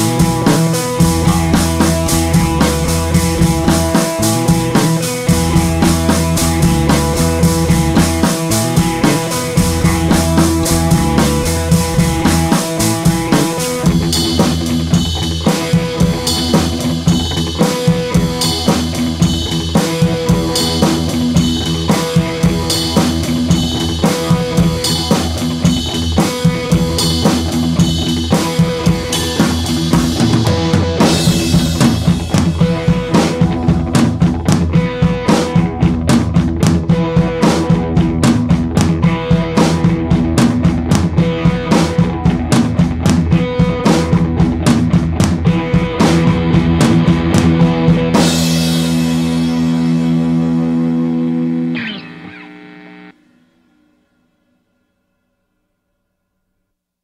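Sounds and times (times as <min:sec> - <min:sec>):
steady drum beat: 0:00.0 - 0:50.9
sustained pitched instruments: 0:49.3 - 0:54.4.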